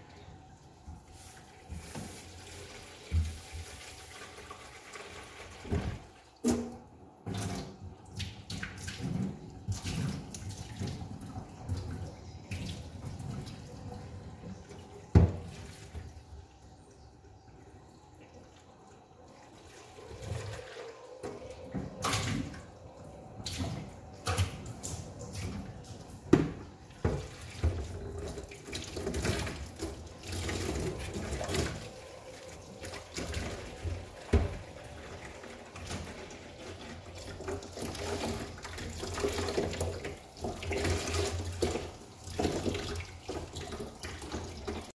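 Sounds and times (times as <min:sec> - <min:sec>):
tap running into sink: 0:33.2 - 0:34.6.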